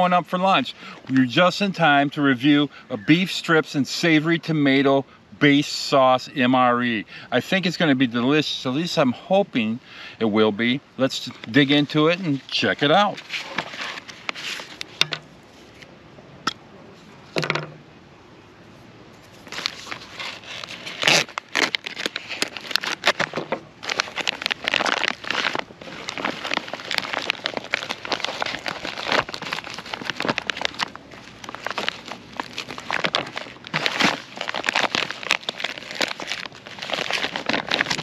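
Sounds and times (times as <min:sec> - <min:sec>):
plastic bag crinkling and tearing: 0:11.2 - 0:15.0, 0:19.4 - 0:38.0.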